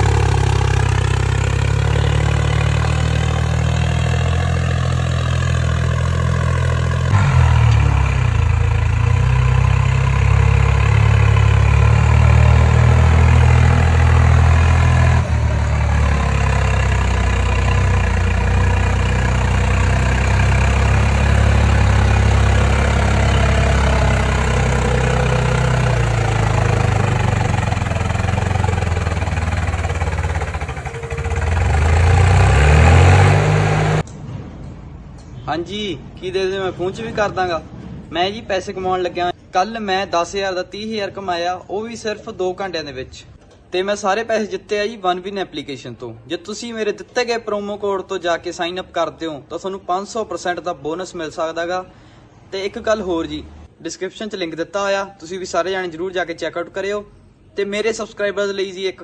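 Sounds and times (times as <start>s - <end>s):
tractor diesel engine running hard: 0.0s - 34.1s.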